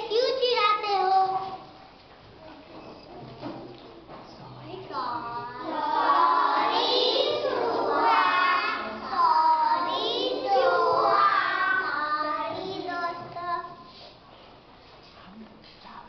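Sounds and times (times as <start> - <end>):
children singing in unison: 5.6 - 13.9.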